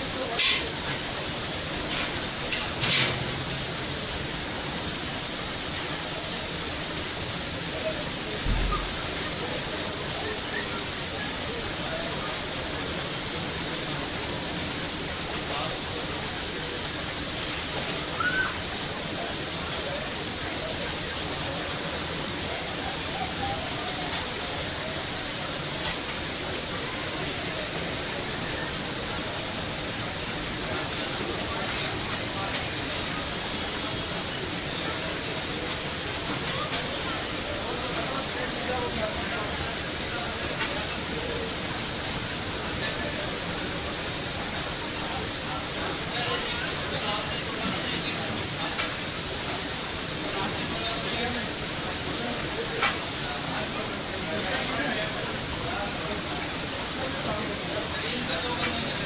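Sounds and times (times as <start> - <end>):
grill hissing: 0.0 - 10.7.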